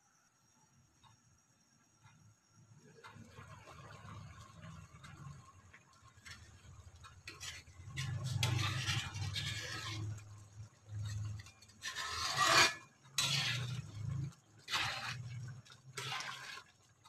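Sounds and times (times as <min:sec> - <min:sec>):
metal spoon stirring thick porridge: 0:06.1 - 0:17.0.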